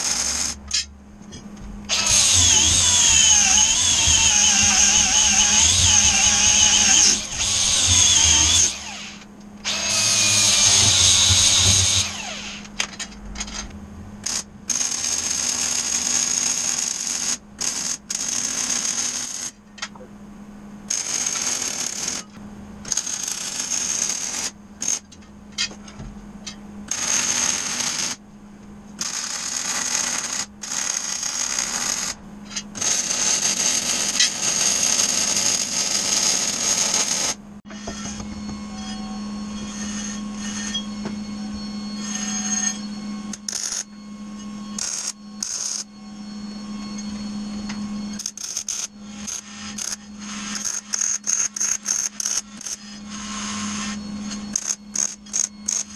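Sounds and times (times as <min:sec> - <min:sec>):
crackling arc welding: 0:00.0 - 0:00.8, 0:01.9 - 0:12.7, 0:44.8 - 0:45.9, 0:48.2 - 0:53.8, 0:54.5 - 0:55.9
steady low hum: 0:00.0 - 0:18.5, 0:19.2 - 0:35.6, 0:37.4 - 0:55.9.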